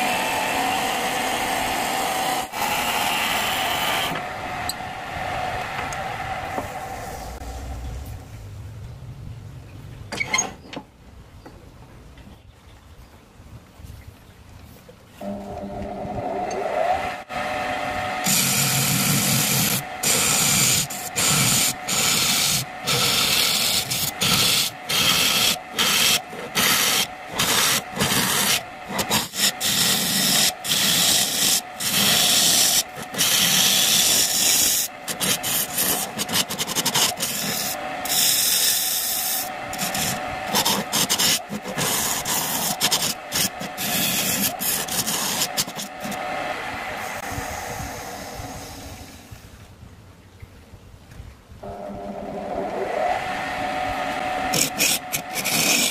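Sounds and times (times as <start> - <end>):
lathe tool scraping wood: 15.2 - 48.9, 51.7 - 55.9.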